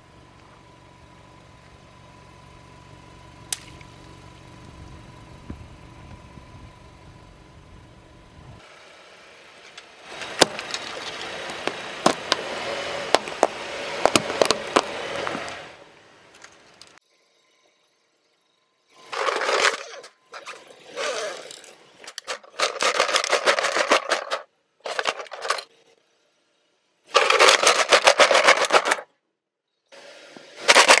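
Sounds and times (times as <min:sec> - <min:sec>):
car engine running: 0:00.0 - 0:17.0, 0:19.0 - 0:25.6, 0:27.1 - 0:29.0
brittle plastic crunching under tyre: 0:10.1 - 0:15.6.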